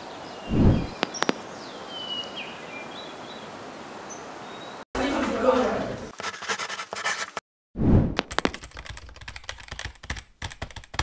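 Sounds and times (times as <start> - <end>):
marker scratching on paper: 6.1 - 7.4
laptop keyboard typing: 8.2 - 11.0.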